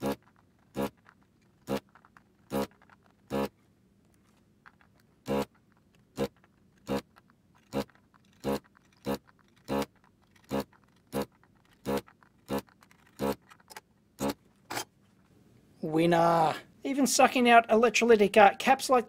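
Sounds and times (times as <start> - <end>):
suction pump buzzing: 0.0 - 3.6, 5.2 - 13.5, 14.2 - 14.4.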